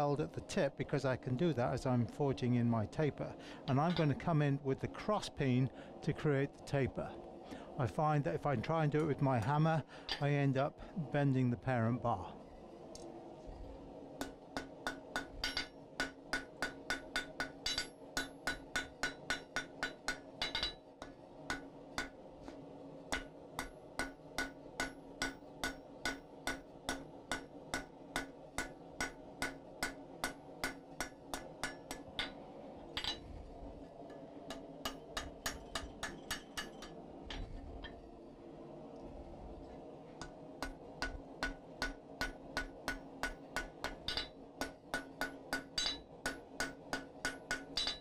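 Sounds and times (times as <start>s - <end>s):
steady low hum: 0.0s - 48.0s
hammer striking hot steel: 14.2s - 33.2s, 34.0s - 38.0s, 40.2s - 48.0s.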